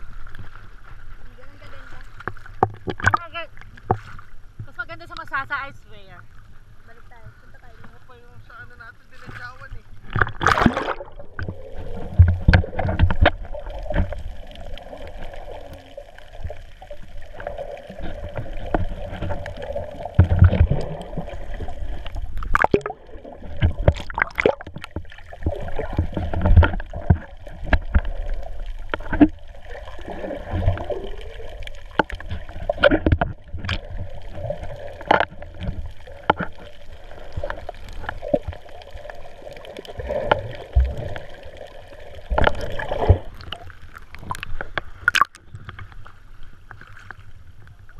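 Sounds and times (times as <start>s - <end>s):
muffled underwater sloshing: 0.0s - 47.9s.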